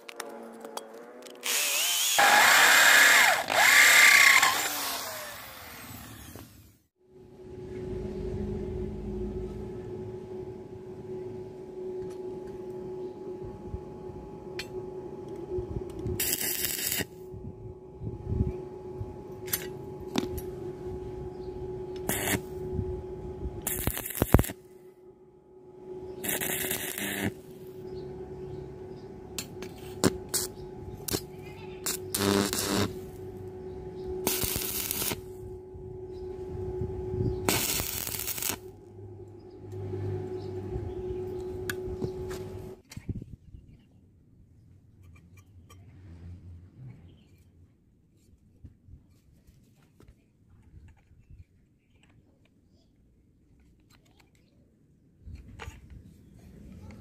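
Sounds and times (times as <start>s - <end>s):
steady hum: 1.5s - 43.3s.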